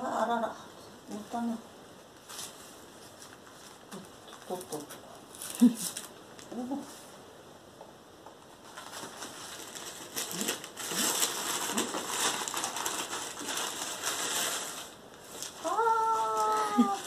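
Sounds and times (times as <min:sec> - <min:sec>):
gift wrap rustling and crinkling: 0:02.2 - 0:06.5, 0:08.6 - 0:17.0.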